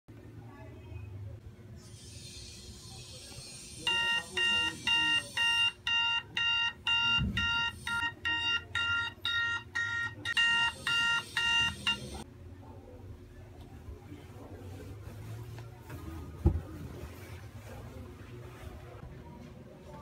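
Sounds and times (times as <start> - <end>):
alarm beeping: 3.9 - 12.2.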